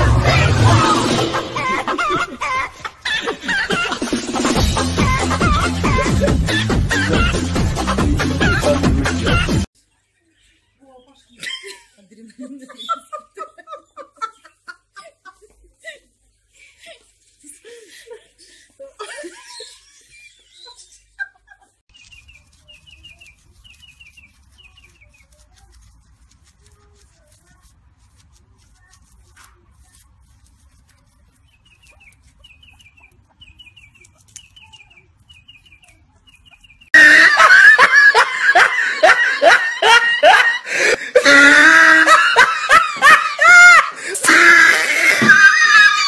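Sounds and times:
people laughing: 0.0s - 9.7s, 11.4s - 21.8s, 37.0s - 46.0s.

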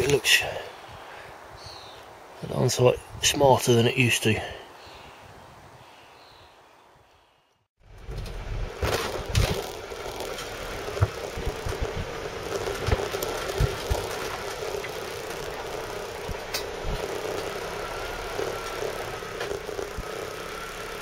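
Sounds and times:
engine and road noise drone: 7.8s - 21.0s
faint wavering whine: 7.8s - 21.0s
low knocks and thumps: 7.9s - 17.6s.

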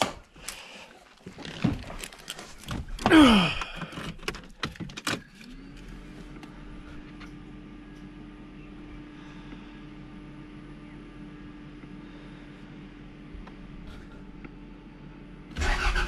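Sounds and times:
clicks and knocks in car seat: 1.2s - 5.4s.

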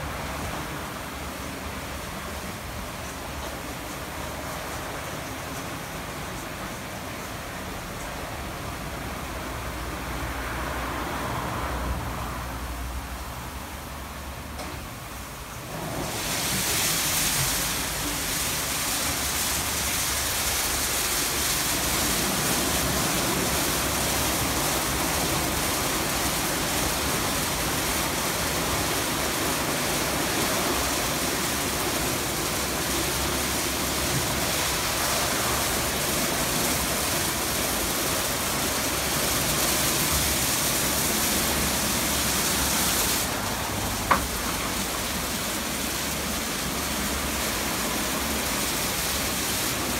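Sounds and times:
water spraying: 15.0s - 49.9s.

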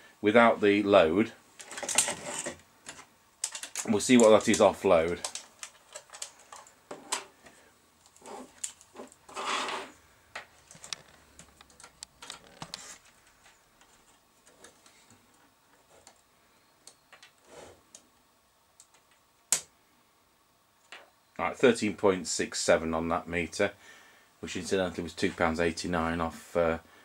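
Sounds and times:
test leads and multimeter handled: 1.6s - 7.3s.

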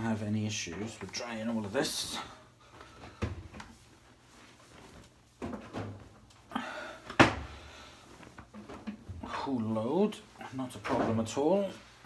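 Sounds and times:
cloth rustling: 0.1s - 6.5s, 7.6s - 12.0s.

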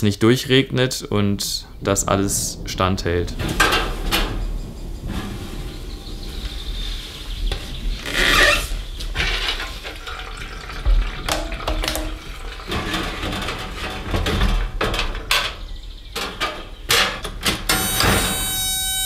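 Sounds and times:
containers clunking and knocking: 9.0s - 17.9s
liquid fuel pouring: 9.6s - 13.2s.

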